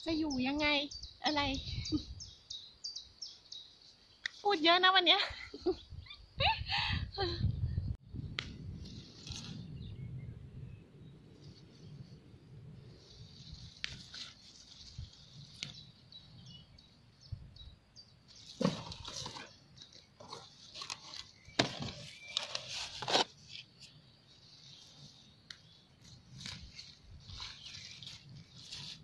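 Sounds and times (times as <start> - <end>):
leaves rustling: 8.5 - 9.9, 12.8 - 16.2, 18.3 - 29.0
roots tearing from crunching soil: 18.4 - 24.0, 26.0 - 29.0.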